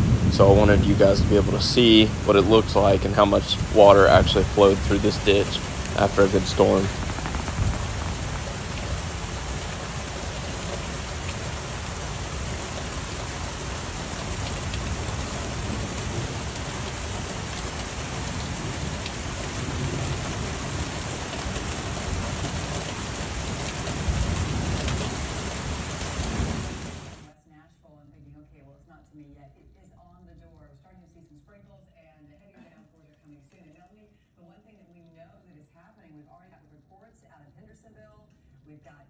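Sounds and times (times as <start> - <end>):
low rumble: 0.0 - 23.1
steady rain: 0.0 - 27.3.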